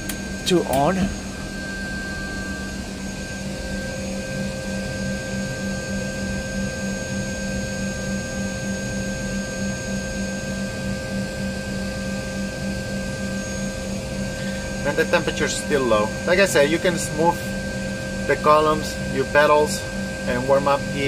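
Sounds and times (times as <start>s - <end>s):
machinery whirring: 0.0s - 6.0s
high whine tones: 0.0s - 21.0s
low hum: 0.0s - 21.0s.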